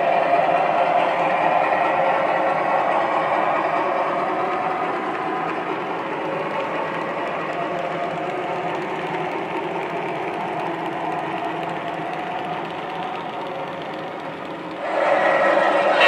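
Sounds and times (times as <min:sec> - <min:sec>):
model train wheels clattering: 0:03.9 - 0:15.8.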